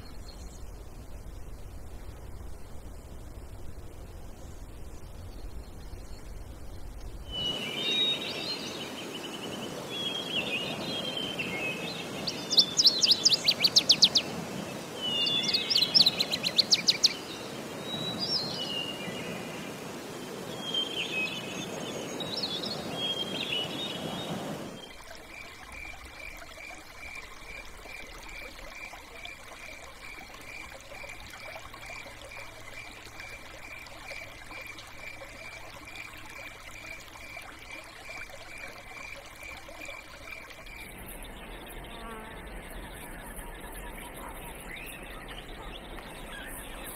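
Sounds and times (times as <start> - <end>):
running water: 0.0 - 46.9
birds calling and chirping: 7.3 - 19.9, 40.7 - 46.9.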